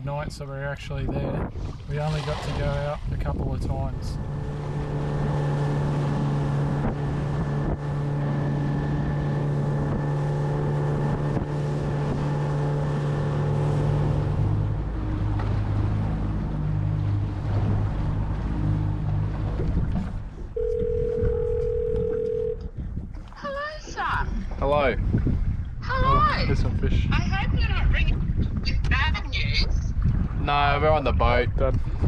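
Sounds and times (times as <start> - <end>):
water rushing past boat: 0.0 - 32.0
wind rushing: 0.9 - 10.3
outboard motor running: 1.0 - 29.2
steady tone: 20.6 - 22.7.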